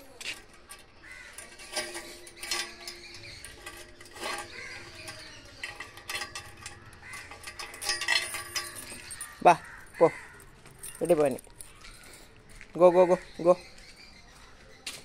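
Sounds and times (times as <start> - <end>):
metal chain clinking and rattling: 0.0 - 11.8.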